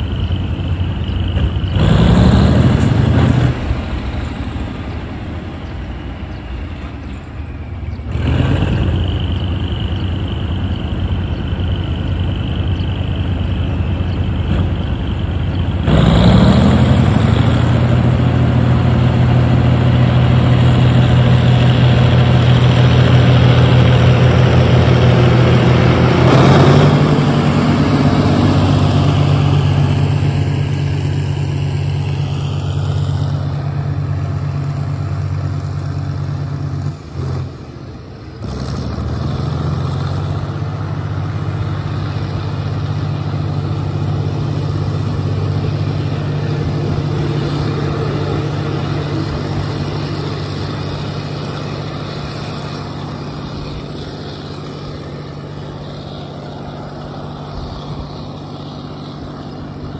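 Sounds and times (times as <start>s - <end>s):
diesel locomotive engine under load: 0.0s - 59.9s
train coaches rumbling on rails: 0.0s - 59.9s.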